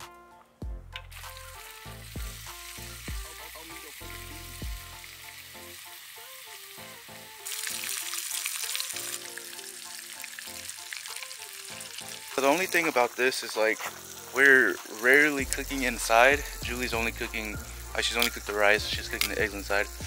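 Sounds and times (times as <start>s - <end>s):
background music with steady beat: 0.0s - 13.1s, 13.8s - 20.0s
bacon sizzling in oil: 1.0s - 20.0s.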